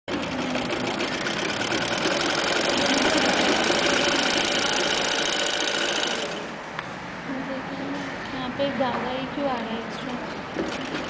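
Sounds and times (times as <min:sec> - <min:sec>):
sewing machine stitching: 0:00.1 - 0:06.6.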